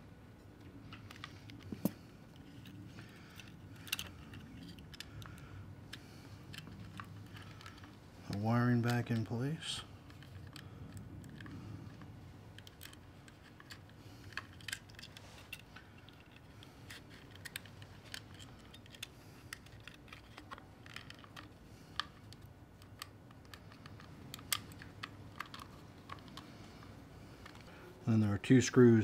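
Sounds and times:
faint low hum: 0.0 - 29.0
plastic and metal clicks: 10.0 - 27.7.

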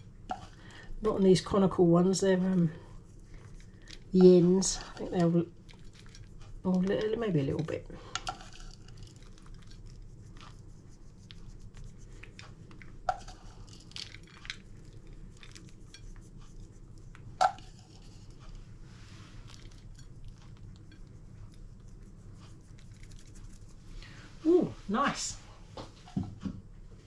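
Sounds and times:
low steady hum: 0.0 - 27.0
nuts pattering on plate: 12.7 - 16.0.

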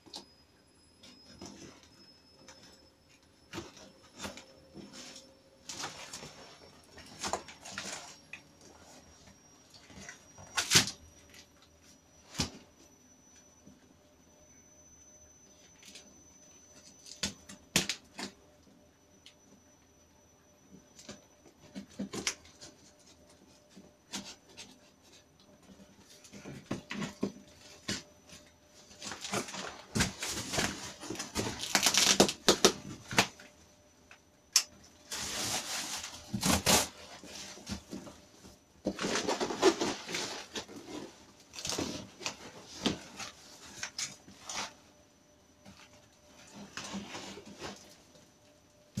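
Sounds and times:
plastic wrap rustling and crinkling: 3.6 - 9.0, 28.9 - 33.5, 35.0 - 44.9.

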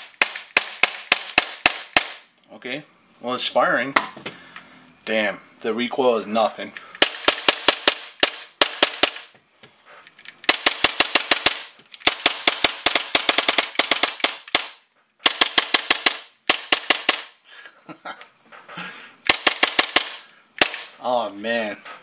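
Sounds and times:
airsoft pistol firing bursts: 0.0 - 2.3, 7.0 - 9.3, 10.5 - 17.4, 19.2 - 21.0.

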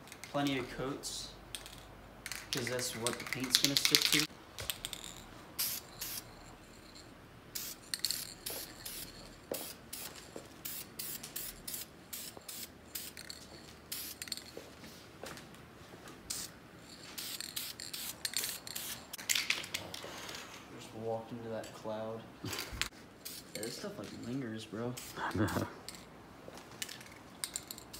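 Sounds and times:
aerosol spray can hissing: 5.6 - 6.3, 7.6 - 13.2, 13.9 - 14.3, 17.2 - 19.1.

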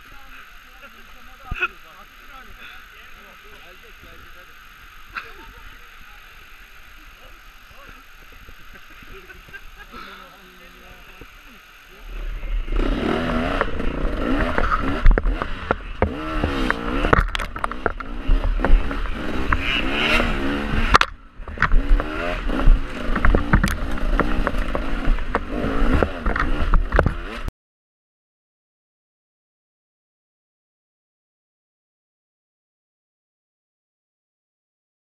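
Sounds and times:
dirt bike engine revving: 0.0 - 27.5
bike knocking and clattering: 14.4 - 19.6, 21.0 - 27.4.

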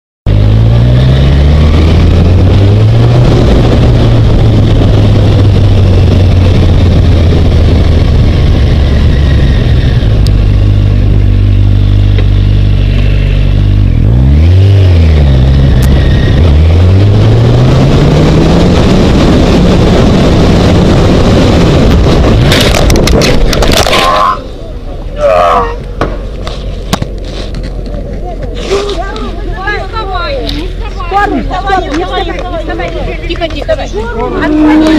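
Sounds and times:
motorcycle engine accelerating: 0.2 - 25.2, 30.5 - 34.9
motorcycle hitting a car: 26.0 - 26.3.

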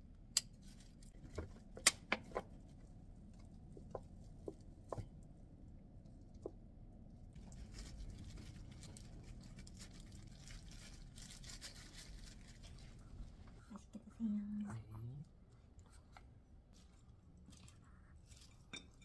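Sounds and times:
plastic wrap crinkling: 7.3 - 13.4.

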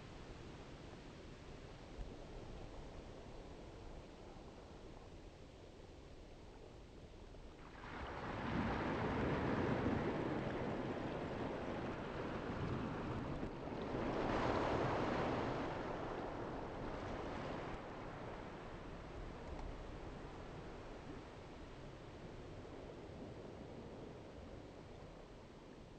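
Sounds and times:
rushing wind and water: 7.4 - 25.9.

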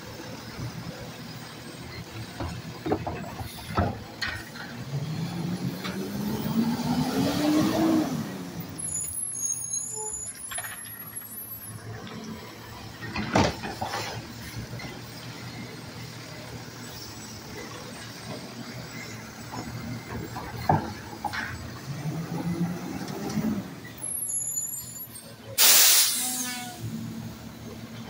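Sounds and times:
diesel engine revving: 3.4 - 9.1, 11.7 - 24.2.

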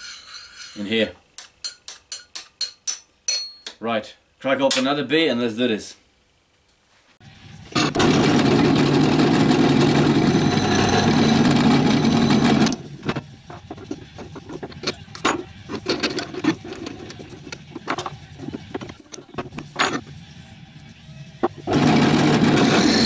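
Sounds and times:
electric drill boring through metal: 7.8 - 12.9, 21.6 - 23.0
metal clicks and scrapes: 12.4 - 20.1.

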